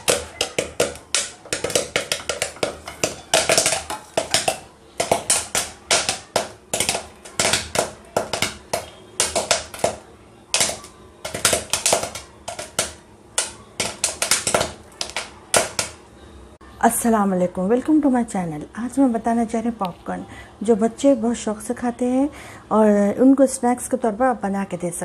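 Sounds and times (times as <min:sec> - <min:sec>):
popcorn popping in oil: 0:00.0 - 0:16.1.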